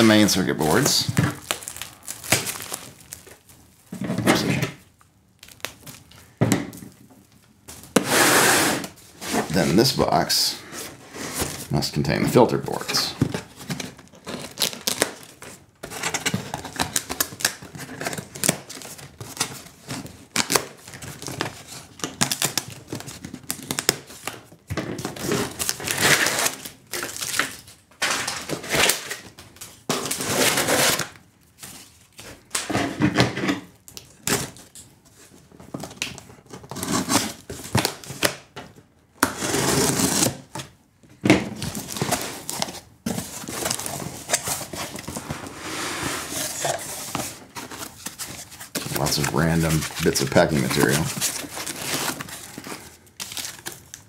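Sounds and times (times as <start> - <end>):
crackling and scraping handling noises: 41.6 - 54.0
foam packing handled: 41.6 - 54.0.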